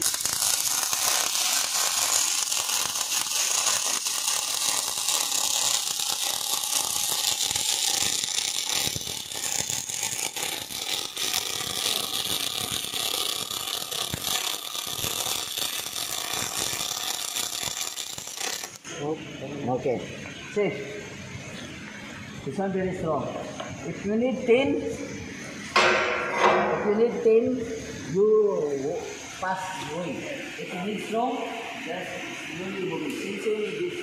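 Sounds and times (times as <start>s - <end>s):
welding arc crackling: 0.0s - 18.9s.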